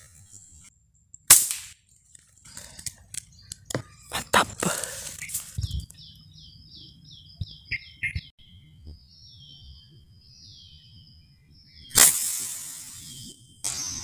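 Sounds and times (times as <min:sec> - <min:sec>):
air rifle shot: 0:01.3 - 0:01.8, 0:11.9 - 0:14.0.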